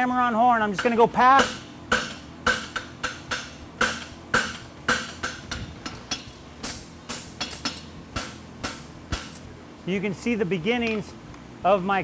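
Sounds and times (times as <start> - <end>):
hammer striking horseshoe on anvil: 0.6 - 9.4.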